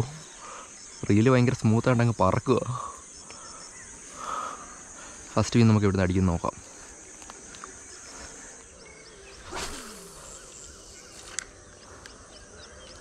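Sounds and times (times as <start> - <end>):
birds chirping: 0.0 - 13.0
insects hissing: 0.0 - 13.0
fishing rod swishing: 9.4 - 11.5.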